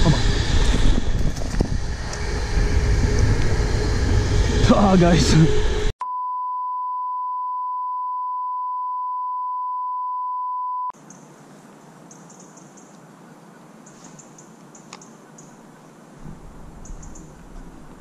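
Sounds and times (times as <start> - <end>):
faint outdoor background hiss: 11.0 - 18.0.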